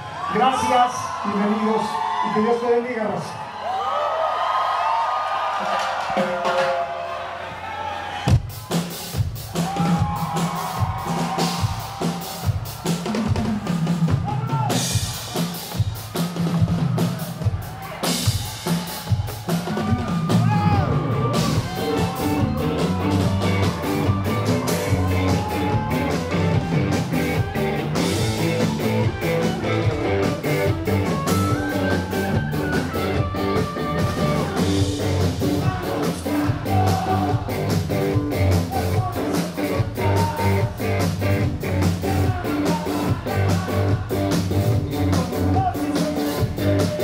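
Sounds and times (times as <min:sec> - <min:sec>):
steady drum beat: 0:08.3 - 0:47.0
electric guitars: 0:20.0 - 0:47.0.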